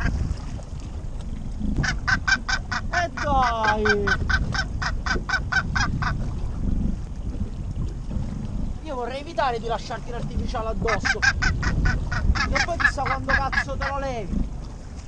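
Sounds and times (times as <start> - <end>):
seabird harsh cries: 1.8 - 6.2, 10.8 - 14.1.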